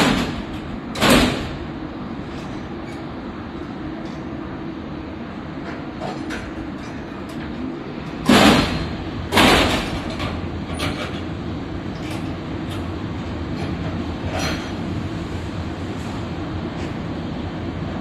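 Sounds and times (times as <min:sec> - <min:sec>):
loud metal clanks of rail cars: 0:00.0 - 0:04.4, 0:05.4 - 0:18.0
steady low rumble: 0:00.0 - 0:18.0.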